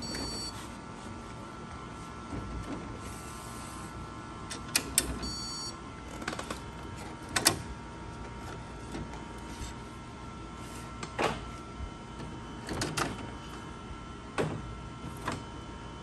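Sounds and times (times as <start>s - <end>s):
printer mechanism whining: 0.0s - 9.6s.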